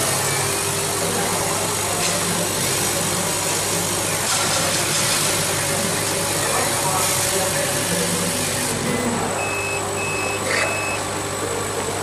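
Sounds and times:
laser cutter hum and hiss: 0.0 - 12.0.

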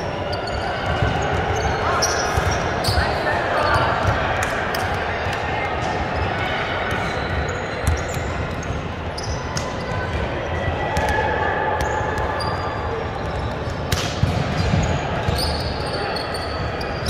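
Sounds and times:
indoor hall din: 0.0 - 17.0
shoe squeaks: 0.2 - 3.9, 7.0 - 10.1, 14.6 - 17.0.

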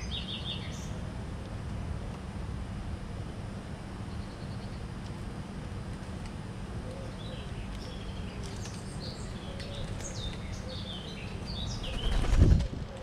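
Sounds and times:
small birds chirping: 0.0 - 1.0, 4.0 - 4.9, 6.8 - 13.0
flurry of wingbeats: 11.8 - 13.0.

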